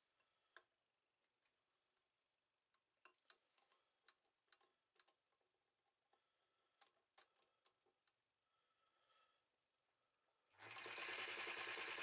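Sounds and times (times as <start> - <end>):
small screw clicks: 3.0 - 5.3.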